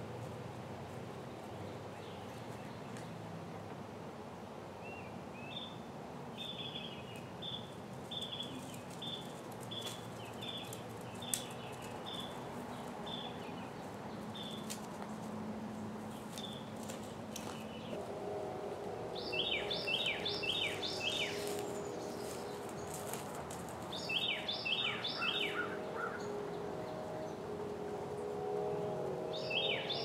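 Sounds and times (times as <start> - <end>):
outdoor background noise: 0.0 - 30.0
songbird chirping: 6.4 - 30.0.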